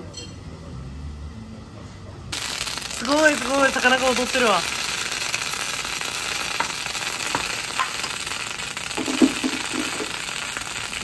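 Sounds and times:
food sizzling on a griddle: 2.4s - 11.0s.

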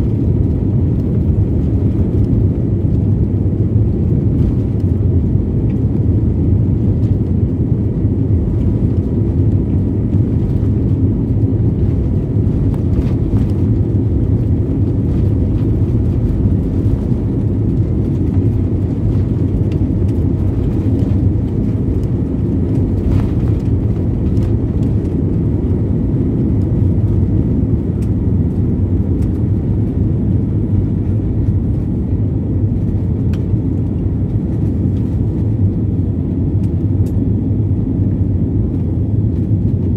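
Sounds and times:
jet engines rumbling in cabin: 0.0s - 39.9s.

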